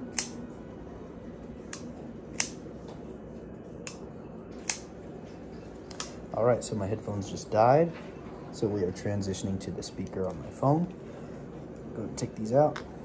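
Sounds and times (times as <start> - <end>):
folding knife blade clicking: 0.1 - 0.4, 1.7 - 2.6, 4.6 - 4.9.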